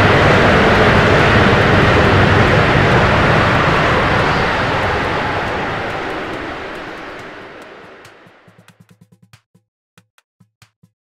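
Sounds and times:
roaring whoosh: 0:00.0 - 0:08.3.

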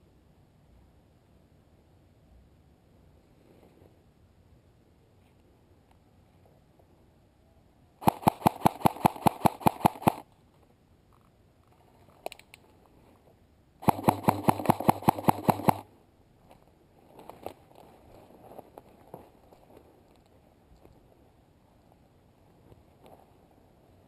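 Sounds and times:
airsoft rifle firing bursts: 0:08.0 - 0:10.2, 0:13.8 - 0:15.9
light clicks: 0:12.2 - 0:12.7.

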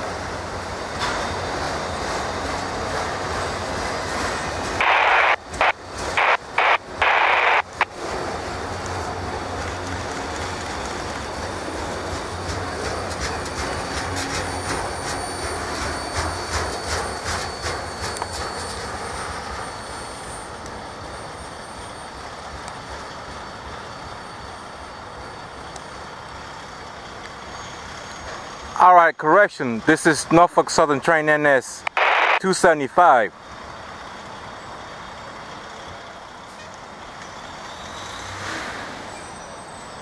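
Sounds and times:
freight train rumble: 0:00.0 - 0:40.0
train wheel clicks: 0:08.7 - 0:19.1.

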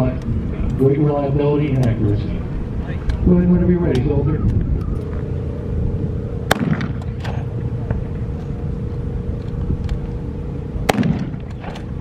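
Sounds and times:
steady hum with low rumble: 0:00.0 - 0:12.0
rifle shots: 0:06.5 - 0:07.0, 0:10.9 - 0:11.4.

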